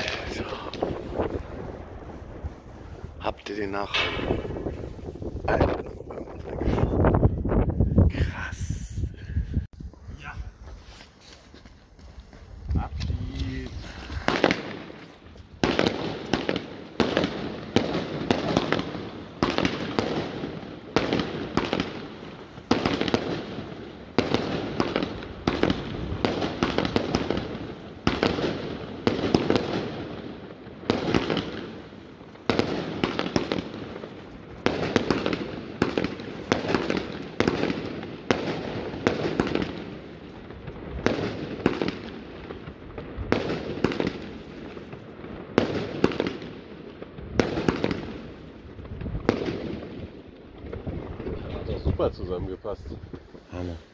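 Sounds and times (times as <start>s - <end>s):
firework shots firing: 0.0s - 2.8s, 3.5s - 5.8s, 14.1s - 51.6s.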